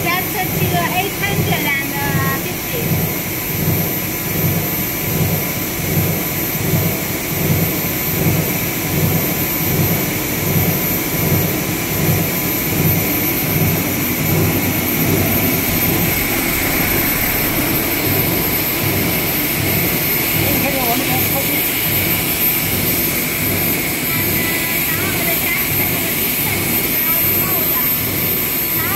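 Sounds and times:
low pulsing throb: 0.0 - 27.4
high whine: 9.2 - 28.8
rush of air from blowers: 10.8 - 28.4.

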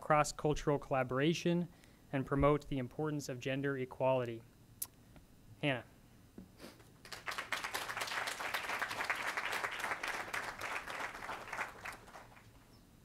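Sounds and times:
audience applauding: 7.0 - 12.6.

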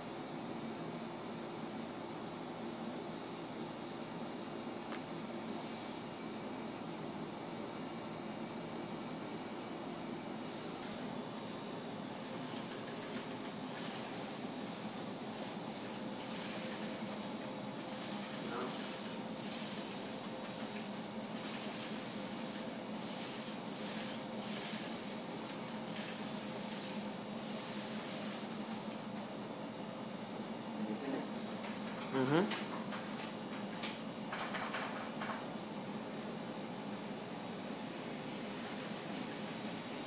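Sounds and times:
paint brush swishing on wall: 5.3 - 6.1, 9.8 - 29.1, 38.2 - 40.0.

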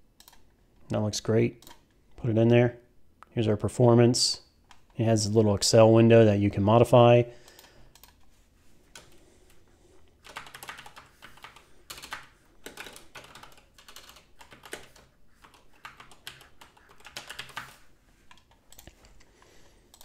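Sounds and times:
keyboard typing: 0.2 - 0.5, 7.5 - 8.3, 8.9 - 9.2, 10.2 - 19.3.

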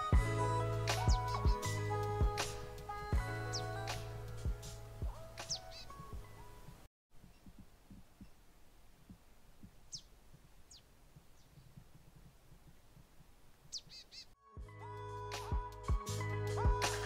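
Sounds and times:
high falling bird calls: 5.0 - 8.5, 9.1 - 12.8, 13.5 - 14.4
soft low thumps: 6.0 - 13.9.

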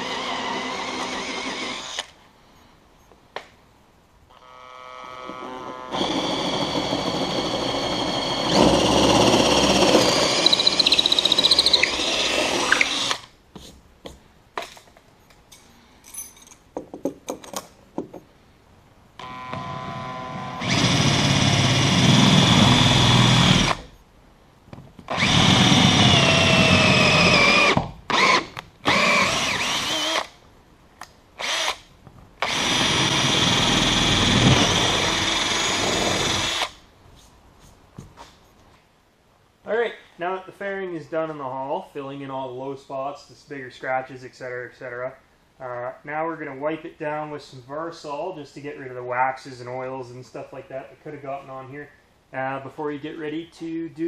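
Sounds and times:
cordless drill boring: 0.0 - 2.1, 4.3 - 13.3, 19.2 - 23.9, 25.1 - 30.3, 31.4 - 31.8, 32.4 - 36.8.

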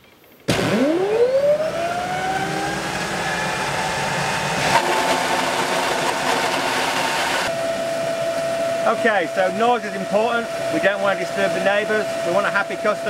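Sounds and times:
turbine whine: 0.0 - 13.0
water jet rushing: 2.1 - 7.5.

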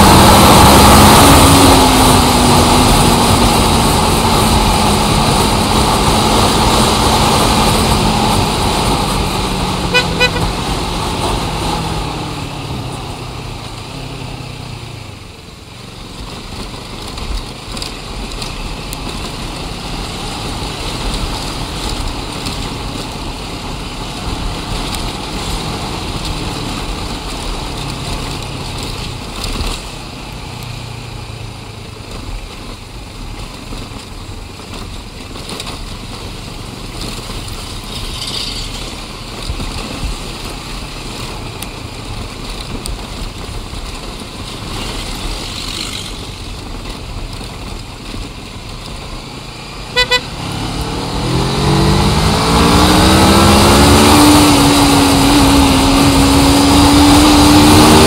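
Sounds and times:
traffic noise: 0.0 - 58.0
car horn toots: 9.8 - 10.7, 49.9 - 50.4
vehicle engine slowing: 36.0 - 58.0.

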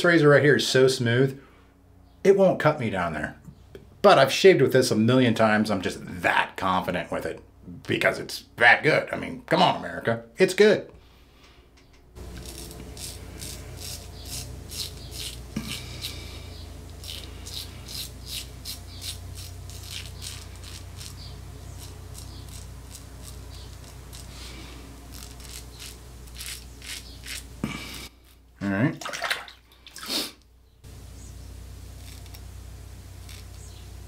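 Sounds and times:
razor scraping stubble: 12.2 - 28.4, 31.2 - 34.0.

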